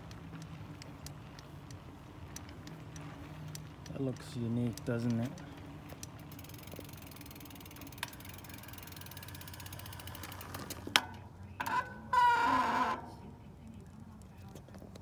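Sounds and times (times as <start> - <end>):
bike freehub ratcheting: 0.0 - 13.0.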